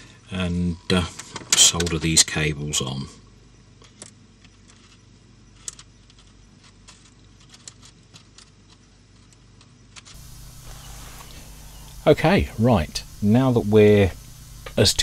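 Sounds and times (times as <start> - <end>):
steady low hum: 10.2 - 15.0.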